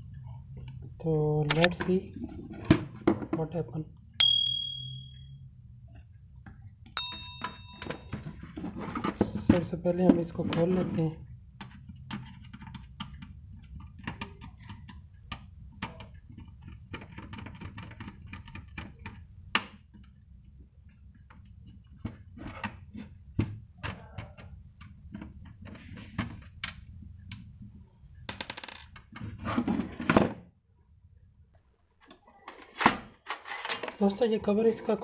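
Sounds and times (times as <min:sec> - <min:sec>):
cover scraping and rattling: 0:28.8 - 0:30.4.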